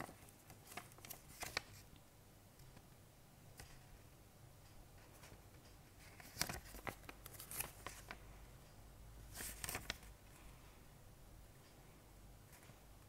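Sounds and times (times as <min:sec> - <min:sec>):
paper rustling and crinkling: 0:00.0 - 0:01.9, 0:06.0 - 0:08.2, 0:09.3 - 0:10.1.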